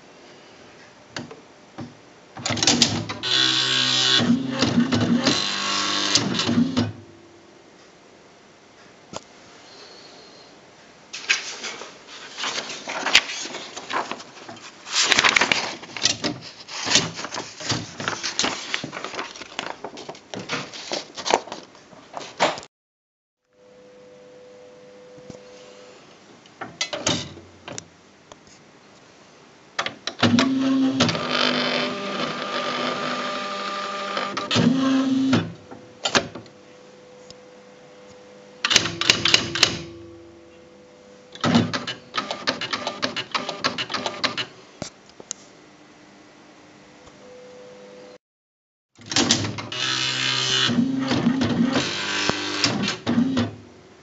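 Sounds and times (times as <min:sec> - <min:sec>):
rapid typewriter printing clicks: 0:02.4 - 0:06.9, 0:38.6 - 0:39.9, 0:41.4 - 0:44.5, 0:49.0 - 0:53.6
paper rustling: 0:11.2 - 0:22.7
typewriter motor whirring: 0:49.0 - 0:53.5.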